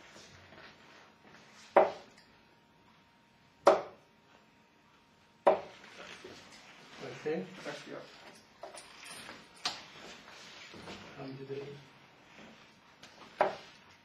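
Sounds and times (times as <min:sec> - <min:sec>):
darts thudding into dartboard: 0:01.7 - 0:02.1, 0:03.6 - 0:04.0, 0:05.4 - 0:05.7.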